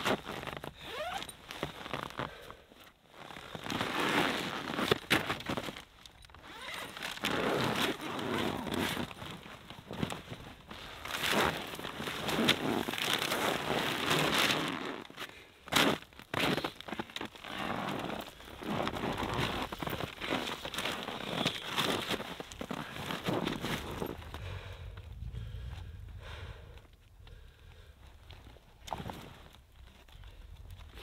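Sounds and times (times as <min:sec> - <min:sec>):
tent fabric rustling: 0:00.0 - 0:02.2, 0:03.0 - 0:15.3, 0:15.9 - 0:24.4.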